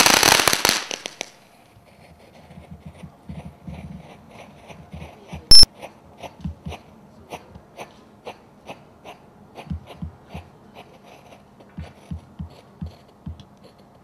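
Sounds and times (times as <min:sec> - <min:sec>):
firework fountain pops and crackles: 0:00.0 - 0:01.4.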